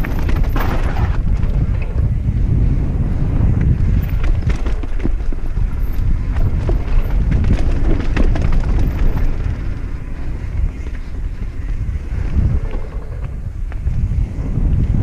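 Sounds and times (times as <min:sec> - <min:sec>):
bike clattering over bumps: 0:00.0 - 0:15.0
wind rumbling on microphone: 0:00.0 - 0:15.0.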